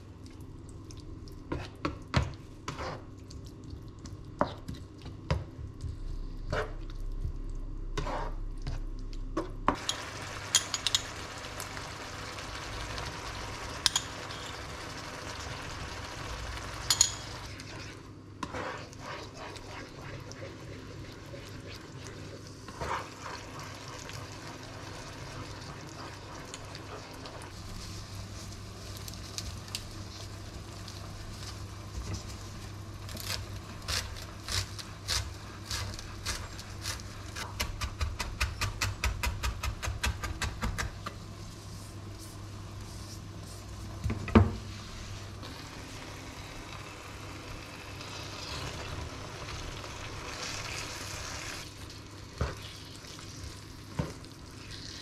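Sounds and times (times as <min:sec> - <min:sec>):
vegetables sizzling in frying pan: 0:09.8 - 0:17.4, 0:45.5 - 0:51.6.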